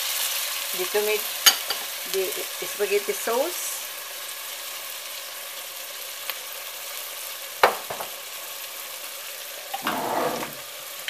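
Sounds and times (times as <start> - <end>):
meat sizzling in a pot: 0.0 - 11.0
pot clatter: 9.8 - 10.6.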